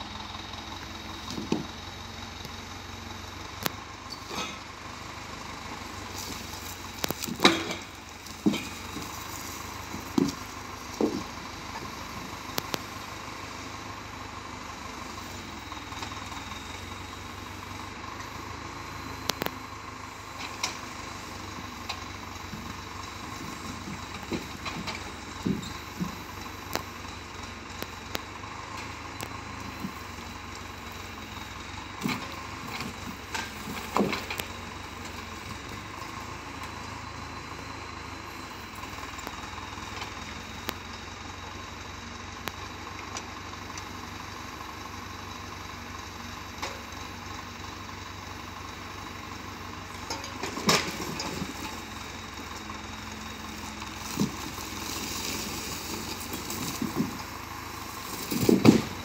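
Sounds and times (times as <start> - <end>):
tractor diesel engine running: 0.0 - 59.0
logs knocking on pile: 1.3 - 1.8, 5.7 - 13.0, 21.6 - 26.9, 32.0 - 35.9, 50.1 - 51.7, 54.0 - 57.4, 58.0 - 59.0.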